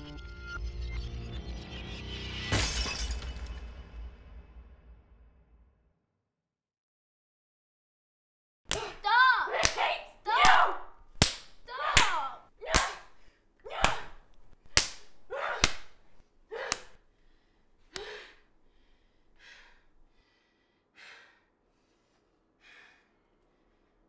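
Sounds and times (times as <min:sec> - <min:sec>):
sharp smacks: 0:09.6 - 0:13.1, 0:13.8 - 0:16.0
person gasping and grunting: 0:15.3 - 0:17.0, 0:17.9 - 0:18.5.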